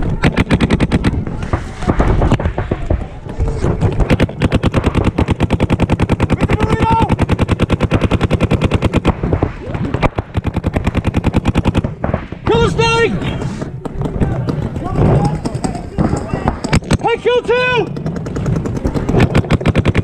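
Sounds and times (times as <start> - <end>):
paintball markers firing: 0.0 - 20.0
player shouting: 6.4 - 7.1.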